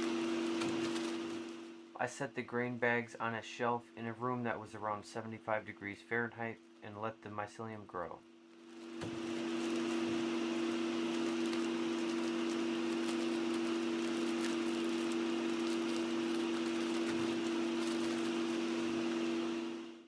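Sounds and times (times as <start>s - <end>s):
plastic bags crinkling: 0.0s - 1.8s, 8.5s - 19.8s
blower fan humming: 0.0s - 20.0s
air hissing through filter: 8.7s - 20.0s.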